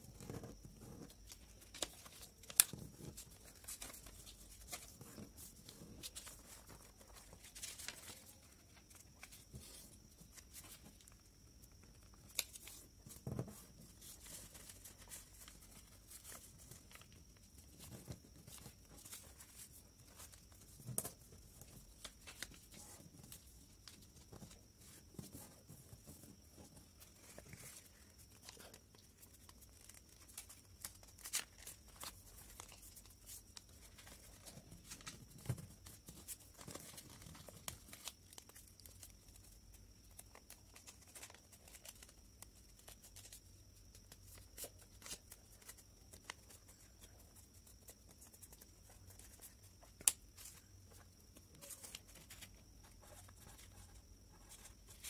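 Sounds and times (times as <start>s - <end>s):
paper rustling and creasing: 0.0s - 43.4s
faint high whine: 0.0s - 55.0s.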